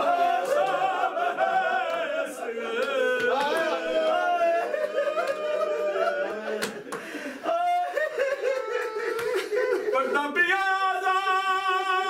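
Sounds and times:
man chanting unaccompanied: 0:09.8 - 0:12.0.

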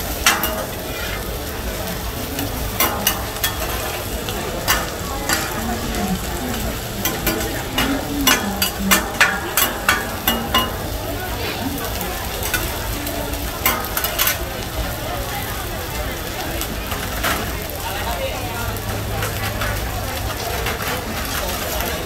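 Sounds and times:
metal spatula scraping and clacking: 0:00.0 - 0:01.7, 0:02.4 - 0:11.1, 0:12.4 - 0:12.9, 0:13.6 - 0:14.5
oil sizzling on a griddle: 0:00.0 - 0:22.0.

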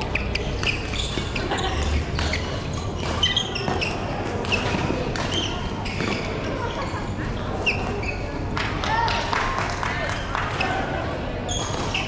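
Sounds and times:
shoes squeaking on court: 0:00.0 - 0:08.5, 0:11.5 - 0:12.0
racket striking shuttlecock: 0:02.1 - 0:06.2.

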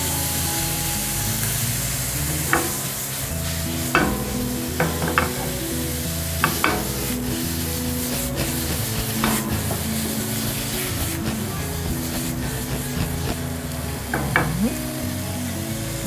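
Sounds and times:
background music: 0:00.0 - 0:16.0
food sizzling in a frying pan: 0:00.0 - 0:16.0
spatula clacking on pan: 0:02.4 - 0:14.8.

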